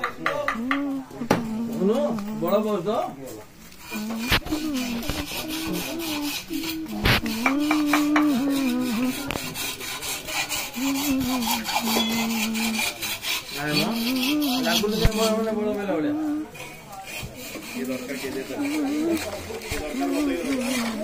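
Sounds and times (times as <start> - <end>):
knives scraping bamboo: 3.7 - 15.5, 16.6 - 21.0.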